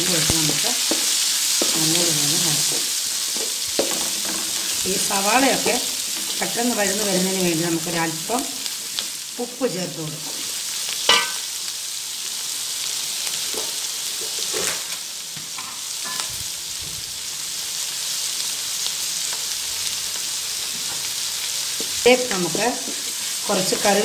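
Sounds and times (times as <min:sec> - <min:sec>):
vegetables sizzling in oil: 0:00.0 - 0:24.0
wooden spatula knocking pan: 0:11.1 - 0:11.4.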